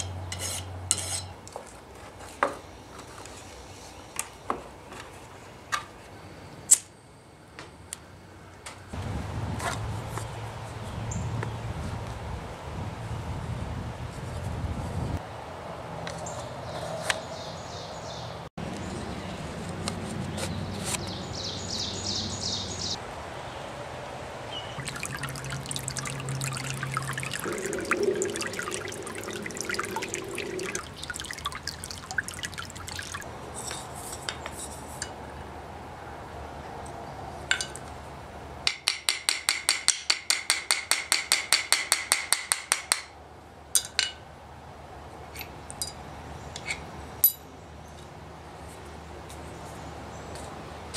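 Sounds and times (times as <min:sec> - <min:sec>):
stream trickling over stones: 0:24.8 - 0:33.3.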